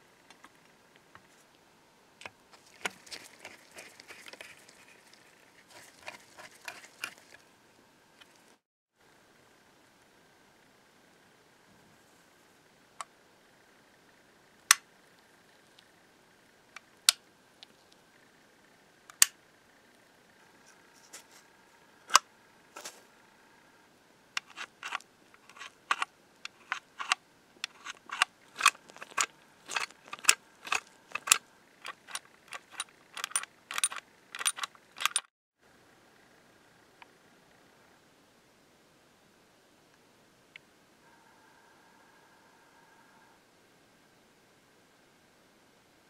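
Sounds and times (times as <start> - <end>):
lock latch bolt clicking: 26.7 - 35.3.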